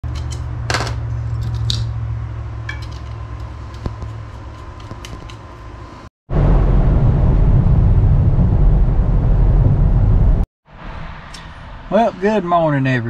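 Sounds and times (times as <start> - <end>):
crossbow bolts clicking and scraping: 0.1 - 0.6, 1.3 - 1.9.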